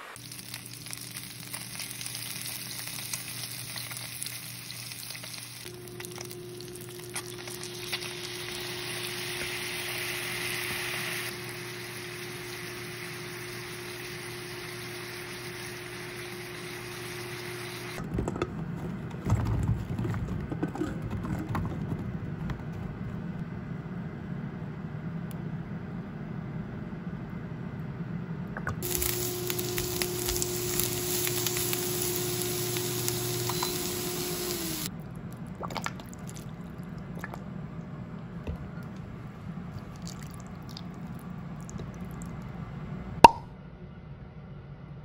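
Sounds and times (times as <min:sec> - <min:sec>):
low hum: 0:00.0 - 0:18.0, 0:21.8 - 0:35.6
food sizzling in frying pan: 0:00.1 - 0:18.0, 0:28.8 - 0:34.9.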